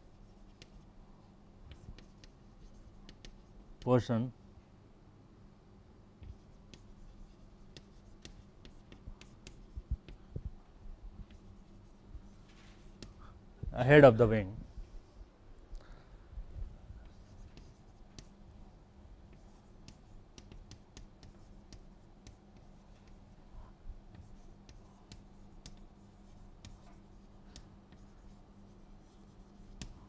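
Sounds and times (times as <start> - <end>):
chalk tapping and scratching: 0.2 - 0.9, 1.7 - 3.6, 6.2 - 10.2, 11.2 - 13.2, 17.0 - 18.4, 19.3 - 23.4, 24.1 - 30.0.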